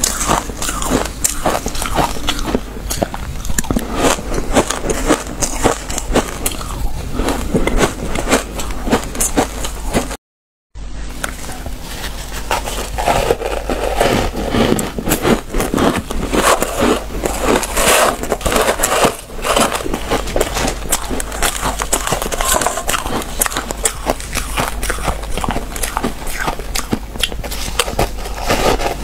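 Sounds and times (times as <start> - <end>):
shaved ice crunching in hands: 0.0 - 8.6
person chewing ice: 0.0 - 10.2, 11.2 - 29.0.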